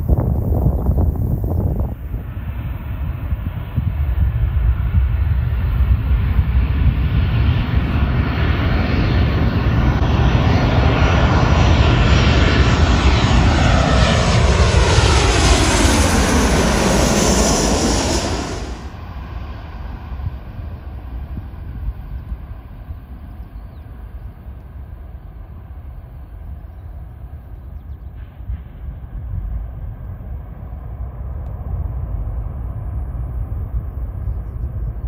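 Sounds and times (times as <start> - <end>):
low rumble: 0.0 - 19.4
airplane engines passing close: 0.0 - 35.0
whine sliding down in pitch: 13.6 - 18.9.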